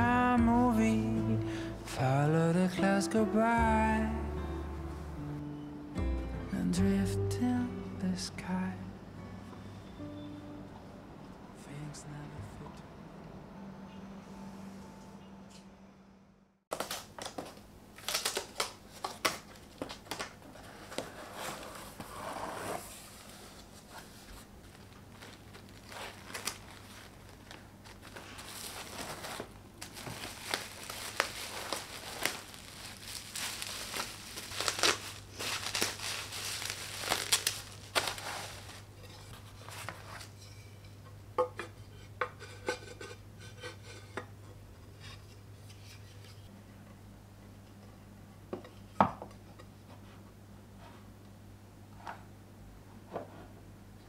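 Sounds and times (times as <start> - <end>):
bubble wrap rustling and crinkling: 16.7 - 40.3.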